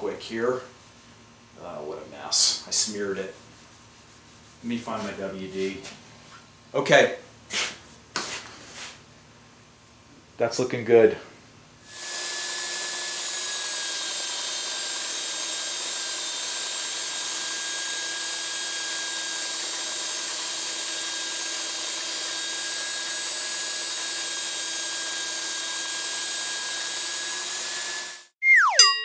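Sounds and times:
belt sander whining: 11.9 - 28.3.

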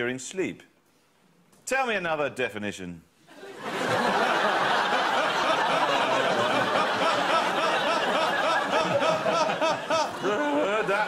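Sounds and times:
audience laughing: 3.3 - 11.0.

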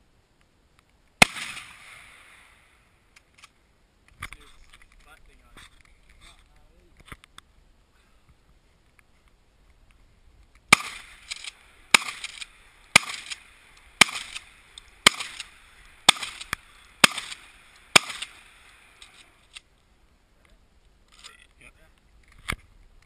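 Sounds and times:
handgun shots with echo: 10.7 - 18.5.

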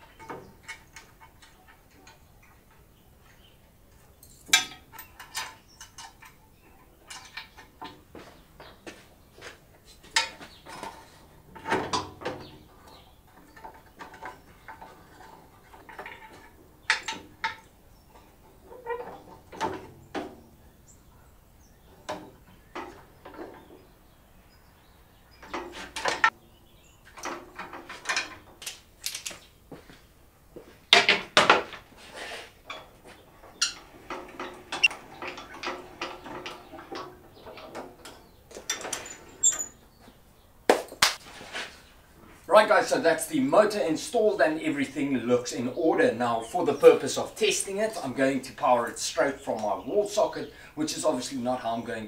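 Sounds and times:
metallic clinks and knocks: 0.1 - 6.4.

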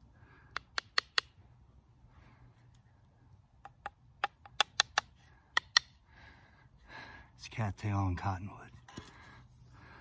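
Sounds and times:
wooden spindle tapping on board: 3.6 - 5.9.

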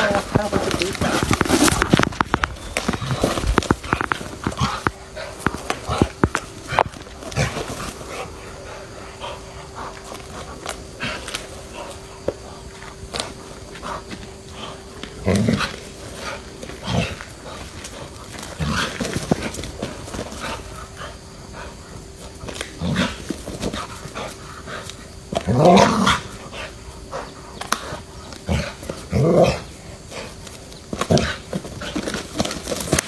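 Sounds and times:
rustling and scuffling in grass: 0.0 - 24.5
dog growling: 2.8 - 30.4.

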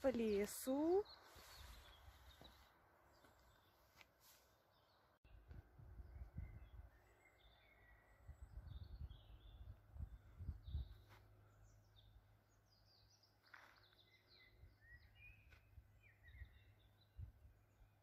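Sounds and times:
small songbirds chirping: 0.0 - 18.0
low rumbling on microphone: 8.2 - 11.0.

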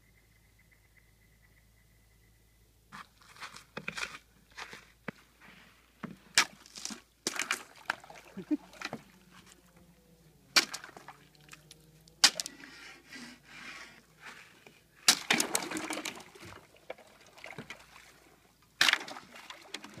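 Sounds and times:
water sloshing: 6.3 - 20.0
ice cracking: 6.4 - 8.1, 12.2 - 12.6, 15.0 - 17.0.

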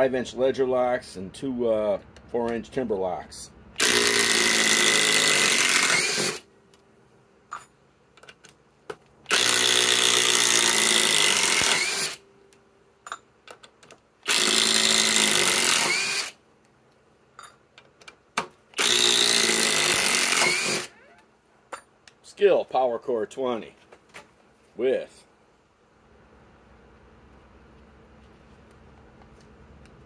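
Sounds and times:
impact driver hammering screws: 3.8 - 6.4, 9.3 - 12.2, 14.2 - 16.3, 18.8 - 20.9.

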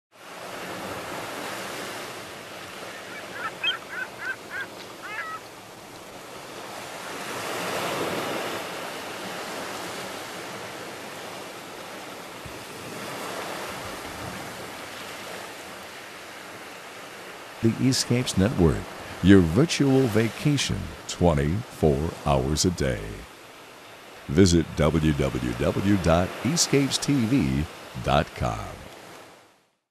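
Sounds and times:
short bird calls: 2.8 - 5.5
surf washing onto beach: 6.1 - 29.4.

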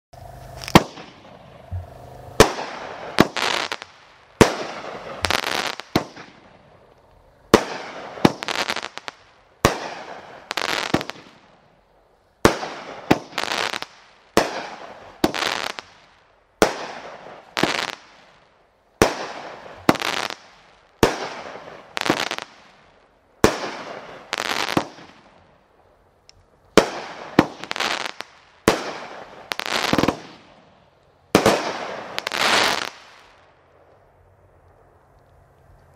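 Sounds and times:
firework launch thumps: 0.2 - 3.4
crackling firework bursts: 0.2 - 35.9.

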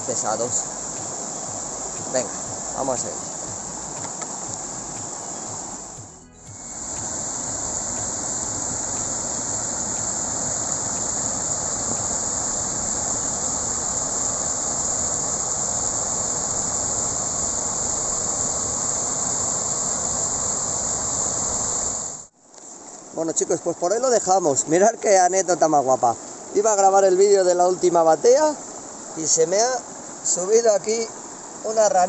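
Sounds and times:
waterfall rushing into pool: 0.0 - 6.0, 6.6 - 22.3.

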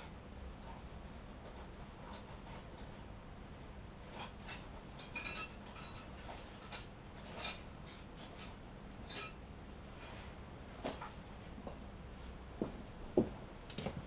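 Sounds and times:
faint steady hum: 0.0 - 14.0
light metallic clinks: 4.1 - 9.4.

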